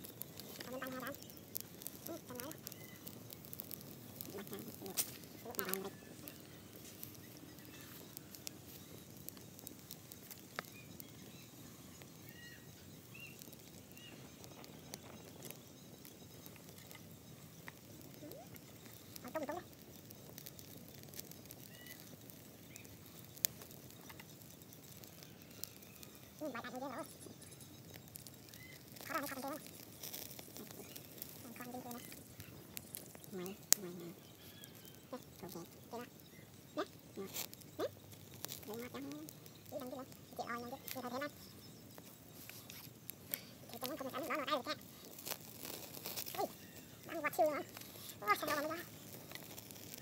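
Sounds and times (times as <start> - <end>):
faint birds chirping: 0.0 - 50.0
wood fire crackling and popping: 0.0 - 50.0.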